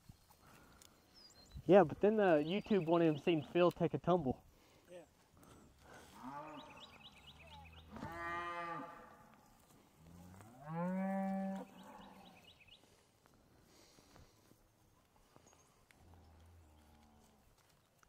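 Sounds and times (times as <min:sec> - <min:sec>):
cattle mooing: 0:06.1 - 0:09.1, 0:10.2 - 0:12.3.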